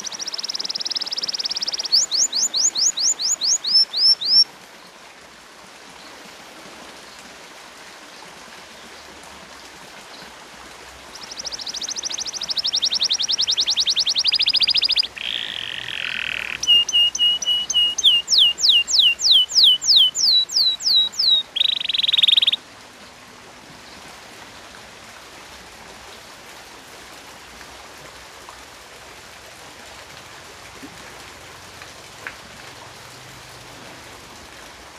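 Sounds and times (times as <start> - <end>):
canary singing: 0.0 - 4.4, 11.2 - 22.6
faint steady hiss: 0.0 - 34.9.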